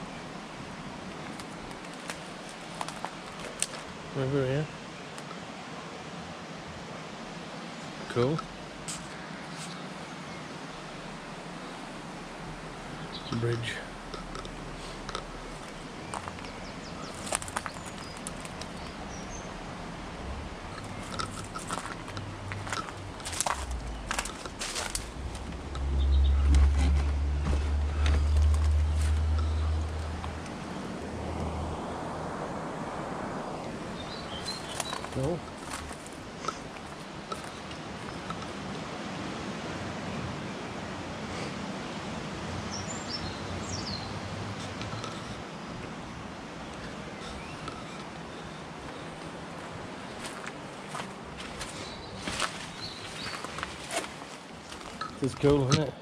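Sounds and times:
river water flowing: 0:00.0 - 0:56.0
footsteps crackling through dry twigs: 0:01.2 - 0:03.9, 0:14.9 - 0:19.0, 0:20.8 - 0:30.5, 0:34.4 - 0:38.2, 0:49.6 - 0:55.6
high bird chirps: 0:23.3 - 0:26.7.

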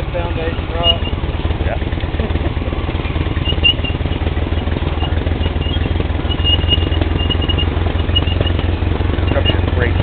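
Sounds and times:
atv engine running: 0:00.0 - 0:10.0
faint high squeaks: 0:05.0 - 0:08.7.

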